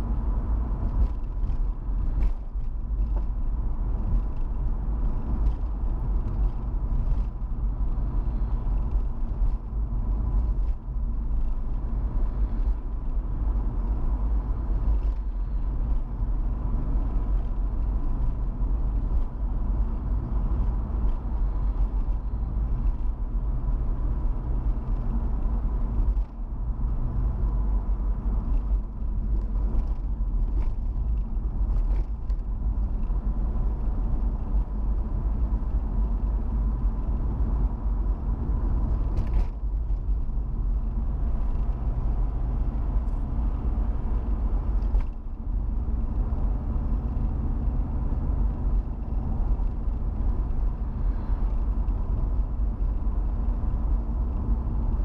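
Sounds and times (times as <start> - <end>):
engine and tyre rumble: 0.0 - 55.0.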